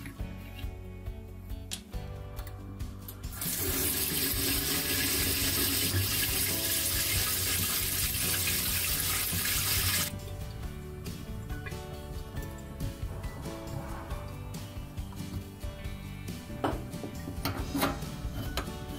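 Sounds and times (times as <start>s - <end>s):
water running from tap: 3.3s - 10.1s.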